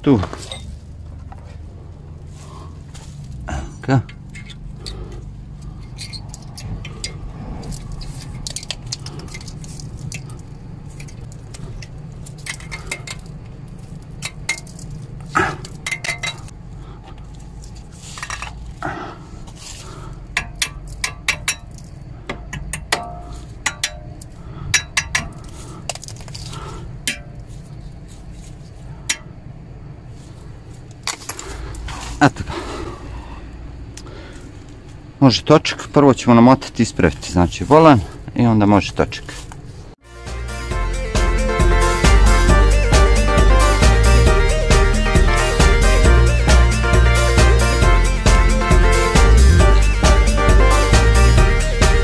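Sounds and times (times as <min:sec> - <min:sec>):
small hammer tapping metal: 0:20.4 - 0:24.2, 0:24.8 - 0:25.4.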